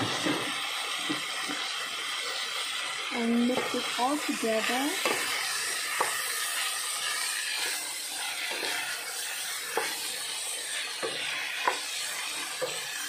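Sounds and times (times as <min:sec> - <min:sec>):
vegetables sizzling in pot: 0:00.0 - 0:13.0.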